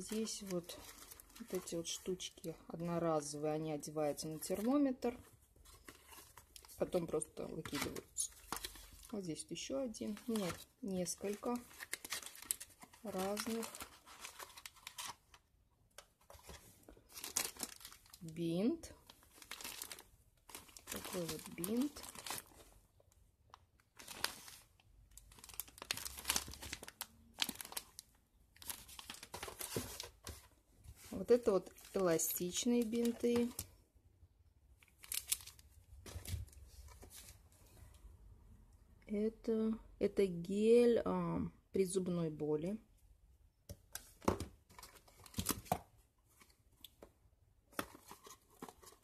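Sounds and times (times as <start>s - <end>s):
packaging crinkling: 11.2s - 15.4s, 16.4s - 18.3s, 19.1s - 22.7s, 24.0s - 30.2s, 34.9s - 35.6s
packaging rustling and clicking: 11.3s - 15.4s, 25.3s - 28.0s.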